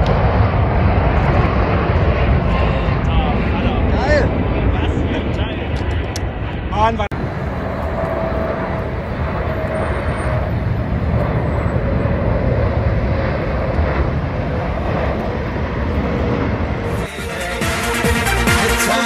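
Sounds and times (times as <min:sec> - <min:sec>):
jet engine roar with whine: 0:00.0 - 0:19.0
electronic music: 0:16.9 - 0:19.0.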